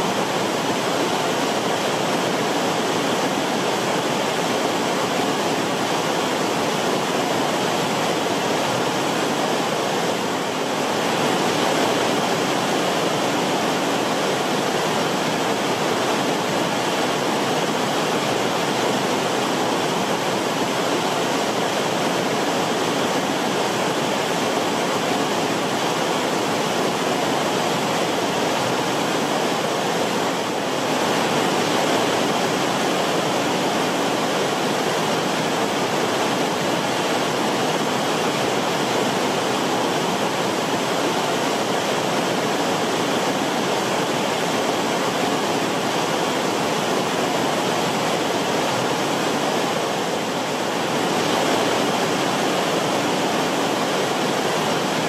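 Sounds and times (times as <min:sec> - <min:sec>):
river water rushing: 0:00.0 - 0:55.0.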